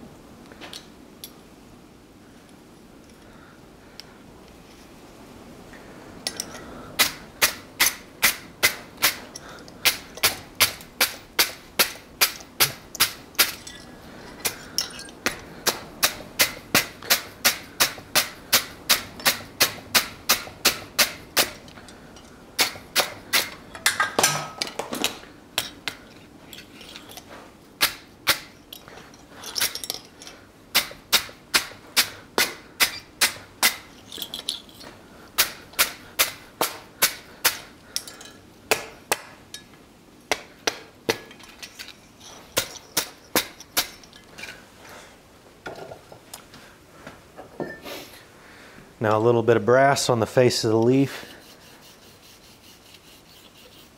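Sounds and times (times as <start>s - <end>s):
wire brush scrubbing steel: 50.9s - 53.9s.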